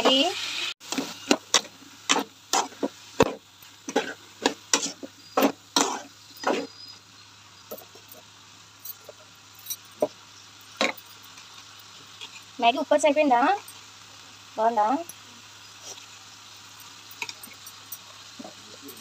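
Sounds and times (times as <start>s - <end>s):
spatula scraping a metal pot: 0.9s - 6.8s.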